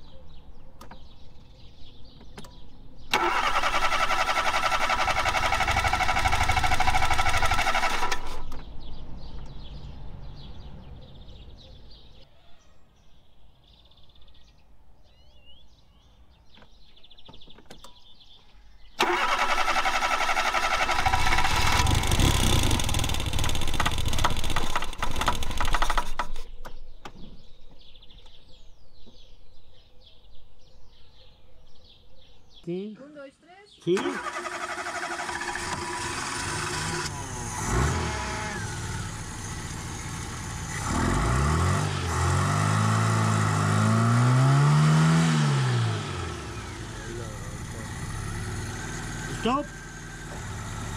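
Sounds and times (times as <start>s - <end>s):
starter motor cranking engine: 3.1s - 8.7s, 19.0s - 26.5s, 33.9s - 44.2s, 45.1s - 50.9s.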